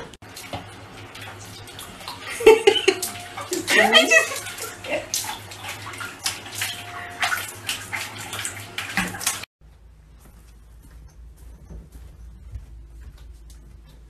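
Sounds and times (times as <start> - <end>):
water splashing in a bucket: 0.0 - 9.5.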